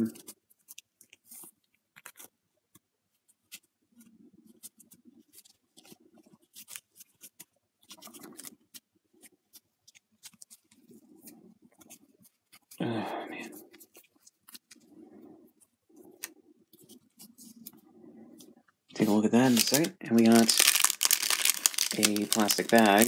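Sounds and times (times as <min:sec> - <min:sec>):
fabric rustling: 0:13.6 - 0:23.0.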